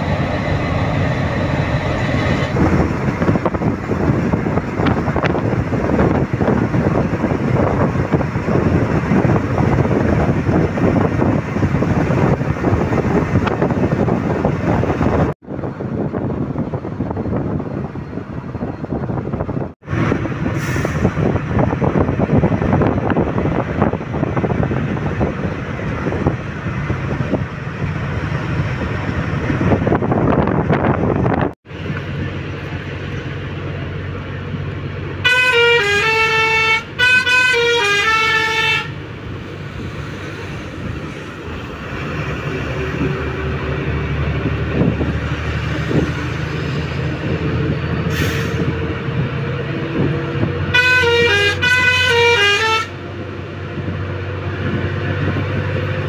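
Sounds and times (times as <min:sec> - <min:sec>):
bus engine and road rumble: 0:00.0 - 0:56.0
musical multi-tone vehicle horn: 0:35.2 - 0:39.0, 0:50.7 - 0:53.0.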